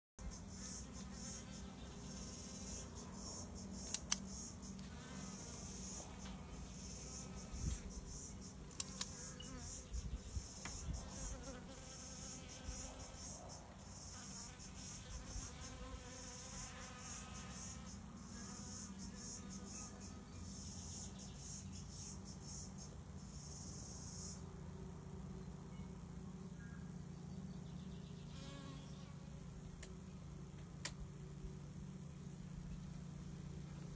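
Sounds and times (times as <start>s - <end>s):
bees buzzing: 0.3s - 21.0s
sharp clicks: 3.8s - 4.3s, 8.7s - 9.2s.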